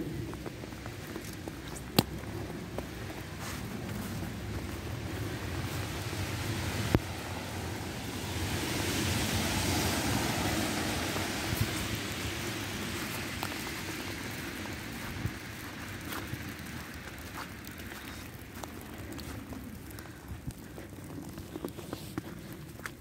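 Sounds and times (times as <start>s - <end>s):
tyre hiss on wet road: 2.8s - 20.2s.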